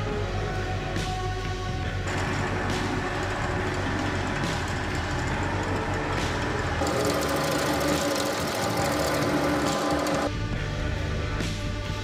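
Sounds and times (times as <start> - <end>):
drill press boring into plywood: 2.1 - 10.3.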